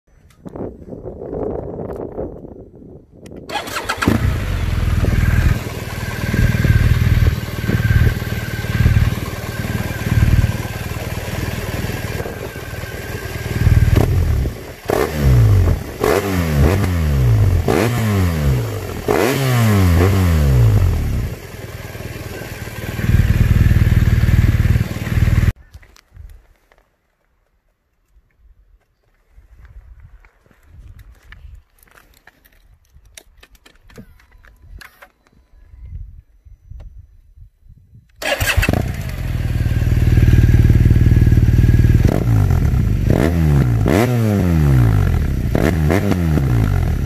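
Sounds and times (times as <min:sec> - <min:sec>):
motorcycle engine revving: 0:03.5 - 0:25.6, 0:38.2 - 0:47.0
motorcycle engine idling: 0:04.3 - 0:16.1, 0:20.6 - 0:25.6, 0:38.8 - 0:43.1.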